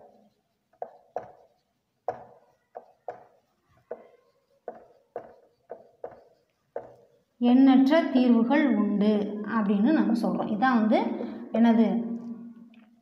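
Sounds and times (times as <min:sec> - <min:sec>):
marker knocking on whiteboard: 0:00.0 - 0:07.2.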